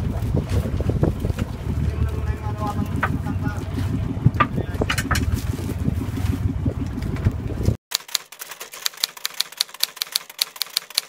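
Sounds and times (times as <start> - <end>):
boat engine rumble: 0.0 - 7.8
rapid dry clicking: 7.9 - 11.0.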